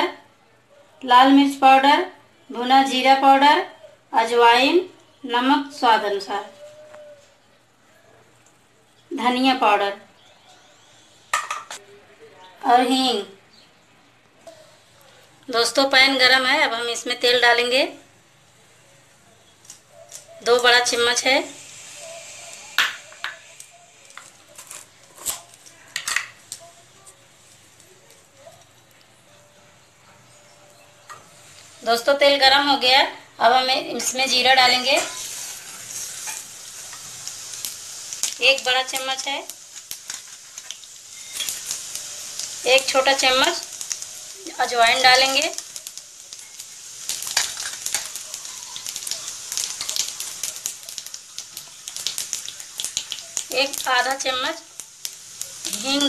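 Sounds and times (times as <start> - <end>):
faint steady hiss: 2.1 - 56.0
utensils clinking against cookware: 11.3 - 11.8, 24.1 - 26.5
seeds sizzling and popping in oil: 19.4 - 29.1, 30.5 - 56.0.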